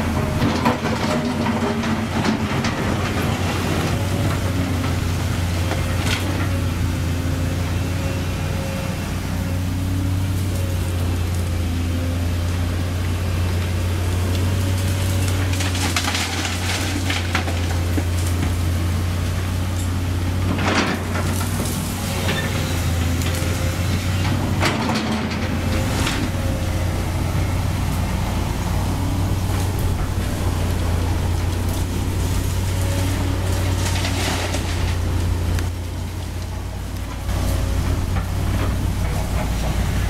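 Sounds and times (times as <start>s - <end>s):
excavator bucket clattering: 0.0s - 5.0s, 15.3s - 18.8s, 24.1s - 27.2s, 37.2s - 40.0s
excavator diesel engine running: 0.0s - 40.0s.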